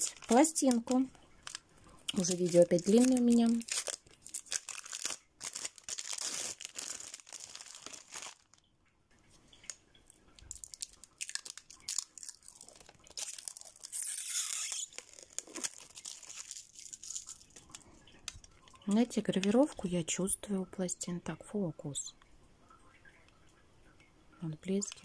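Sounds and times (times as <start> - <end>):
plastic packaging crinkling: 0.0 - 8.6, 9.5 - 19.8
protective film peeling: 2.2 - 8.6, 10.6 - 17.8.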